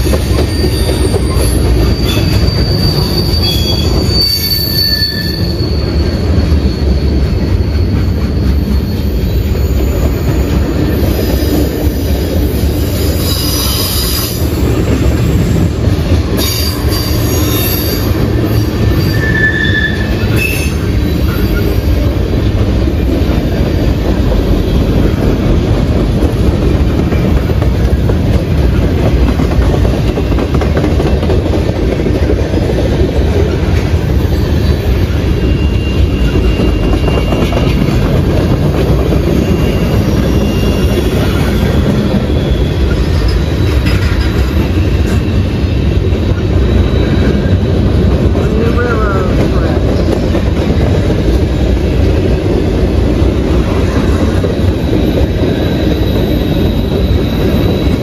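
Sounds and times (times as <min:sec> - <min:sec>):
high wheel squeals: 0:00.0 - 0:22.2, 0:33.4 - 0:48.0, 0:53.6 - 0:58.0
train wheels rumbling on rail: 0:00.0 - 0:58.0.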